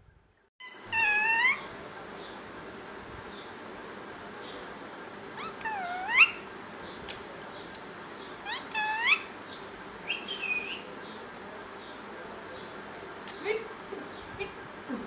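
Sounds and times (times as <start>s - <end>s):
parakeet high-pitched calls: 0.6s - 1.8s, 5.4s - 6.5s, 8.3s - 10.9s.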